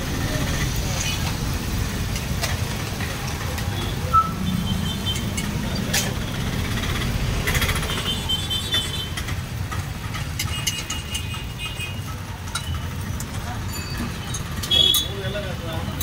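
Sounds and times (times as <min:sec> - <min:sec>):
street noise rumble: 0:00.0 - 0:16.0
metal utensil clicks: 0:12.1 - 0:15.2.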